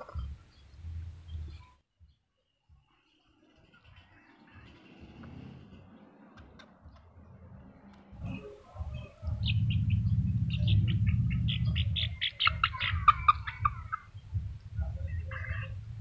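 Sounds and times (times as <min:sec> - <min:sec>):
low rumble: 0:04.0 - 0:16.0
high-pitched animal squeaks: 0:10.6 - 0:14.1.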